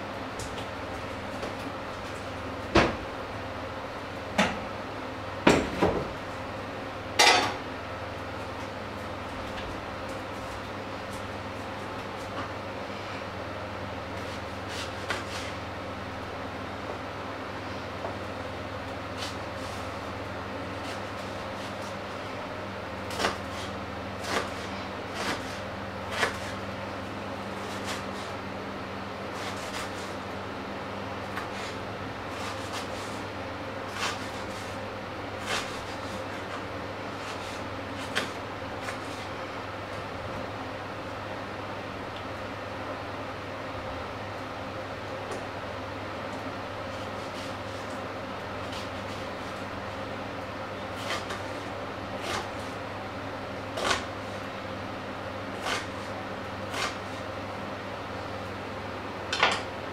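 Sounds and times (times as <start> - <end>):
steady low hum: 0.0 - 59.9
knife cutting onion: 23.0 - 26.7, 27.6 - 28.4, 29.3 - 30.2, 31.3 - 34.8, 35.4 - 39.4, 46.8 - 49.7, 50.8 - 52.8, 53.7 - 54.5, 55.5 - 57.3.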